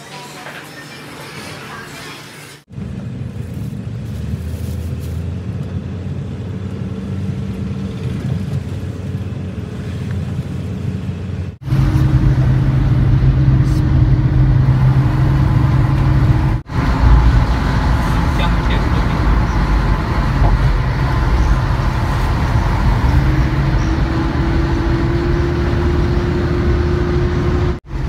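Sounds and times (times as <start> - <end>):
car engine and road noise: 0.0 - 28.0.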